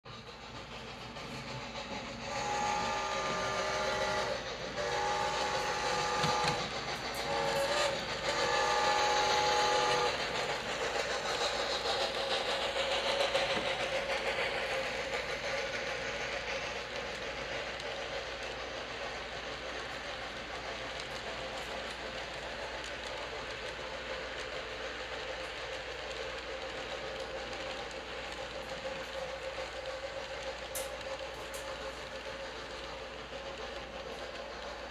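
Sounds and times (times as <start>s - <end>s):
train wheels rattling on track: 0.0s - 34.9s
model train steam whistle: 2.2s - 12.1s.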